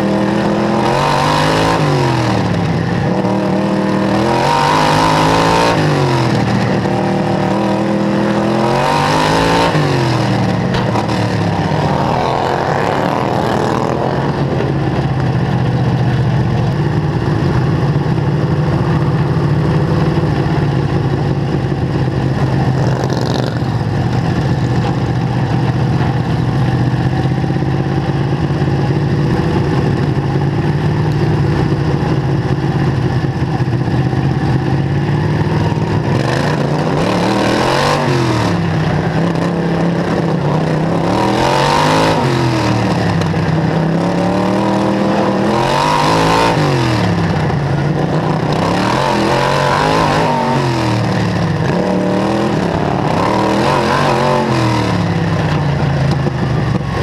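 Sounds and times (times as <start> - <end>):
small racing engine revving: 36.2 - 39.5, 48.2 - 55.2.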